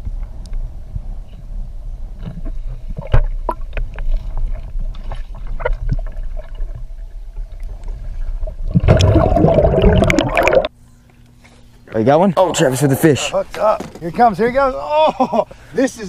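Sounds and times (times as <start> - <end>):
low underwater rumble: 0.0 - 10.7
rush of bubbling water: 4.4 - 10.7.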